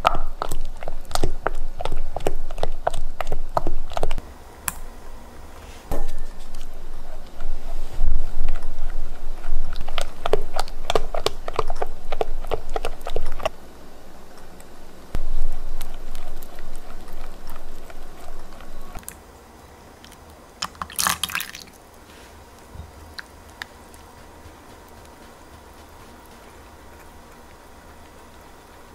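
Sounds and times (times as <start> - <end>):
spatula stirring batter: 22.0 - 28.9.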